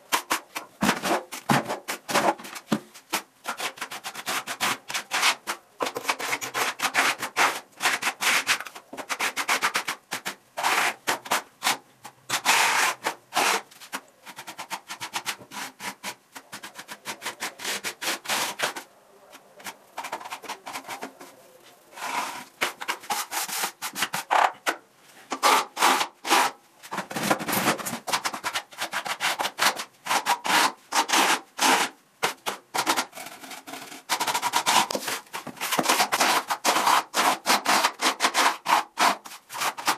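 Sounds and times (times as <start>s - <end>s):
trowel scraping plaster on wall: 0.0s - 18.9s, 19.6s - 39.9s.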